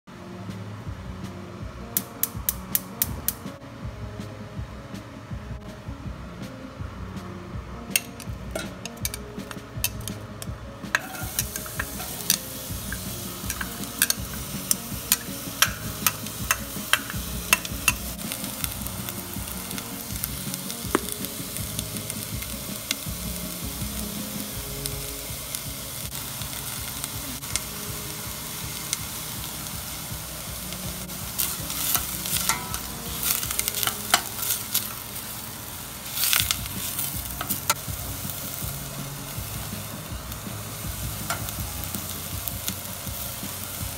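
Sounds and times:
onion sizzling in oil: 0:08.0 - 0:43.9
utensil scraping a pan: 0:11.0 - 0:12.5.

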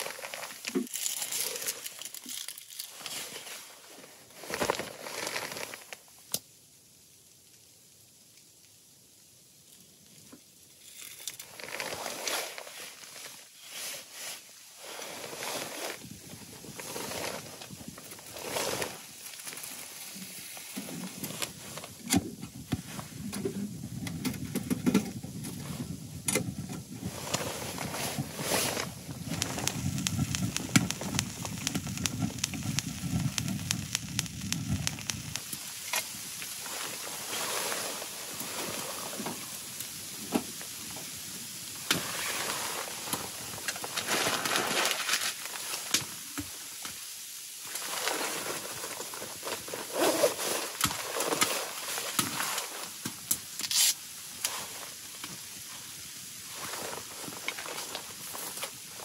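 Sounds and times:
wood fire crackling in stove: 0:00.0 - 0:59.0
low rumble: 0:21.6 - 0:36.8.

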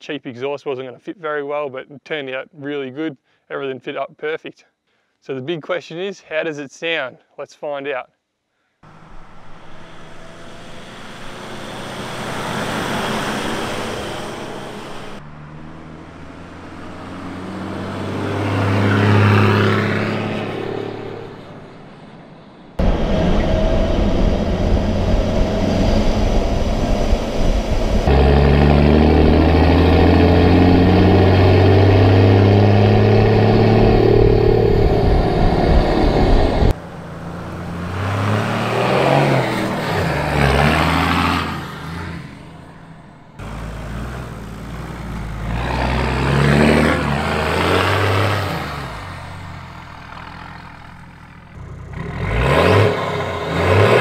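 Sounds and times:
road noise: 0:08.8 - 0:54.0
diesel engine revving: 0:08.9 - 0:21.9, 0:22.8 - 0:54.0
wind noise: 0:22.8 - 0:29.4, 0:32.4 - 0:36.8.

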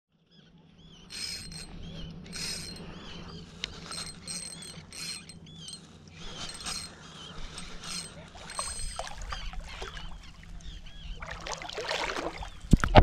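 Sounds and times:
fishing reel gears whirring: 0:00.9 - 0:11.0.

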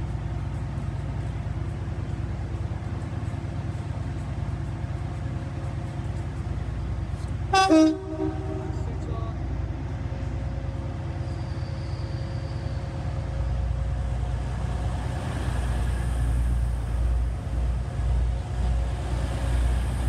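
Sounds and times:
train engine and wheels rumbling: 0:00.0 - 0:20.0.

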